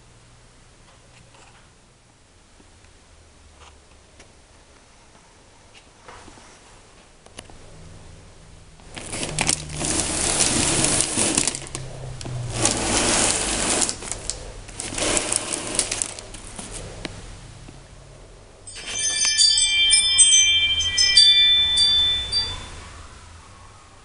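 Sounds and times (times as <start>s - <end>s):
air compressor humming: 8.8s - 17.0s.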